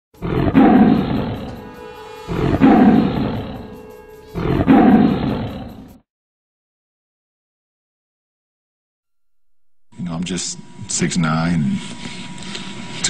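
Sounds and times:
lion roaring: 0:00.2 - 0:06.0.

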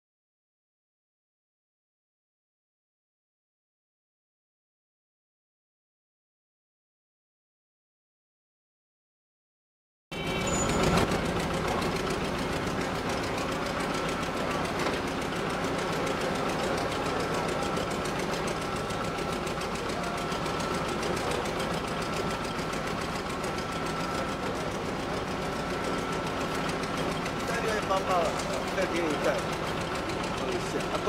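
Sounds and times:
large engine throbbing: 0:10.2 - 0:31.0.

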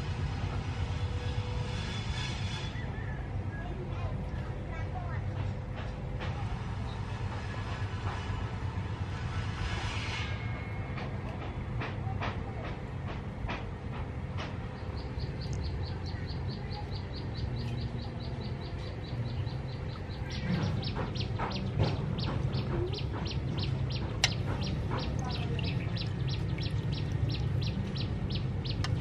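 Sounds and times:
low outdoor rumble: 0:00.0 - 0:29.0
bird chirping: 0:14.8 - 0:29.0.

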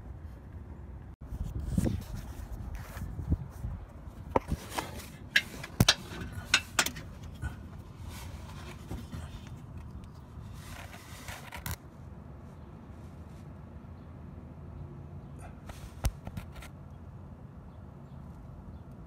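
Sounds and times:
phone handling clicks and scrapes: 0:04.3 - 0:11.9, 0:15.7 - 0:16.7.

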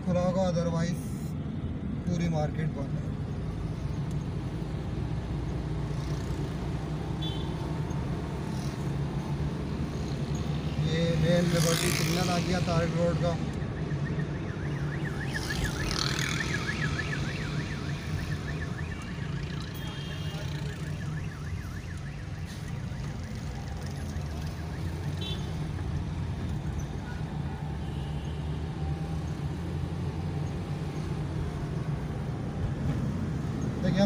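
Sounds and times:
car engine and road rumble: 0:00.0 - 0:34.0
warbling siren: 0:13.1 - 0:25.6.

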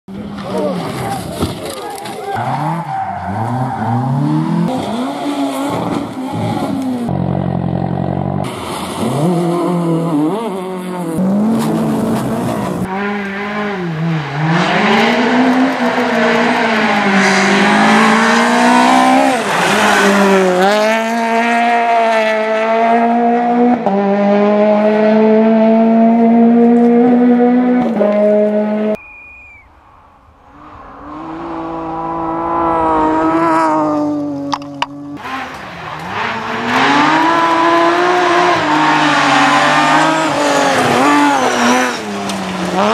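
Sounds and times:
rally car engines revving: 0:00.1 - 0:29.0, 0:30.4 - 0:42.9
engine approaching: 0:30.2 - 0:42.9
engine held at high revs: 0:35.2 - 0:42.9.

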